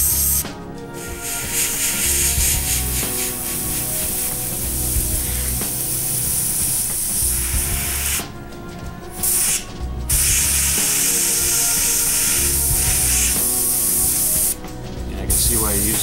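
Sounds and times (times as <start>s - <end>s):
airbrush spraying hiss: 0.0s - 16.0s.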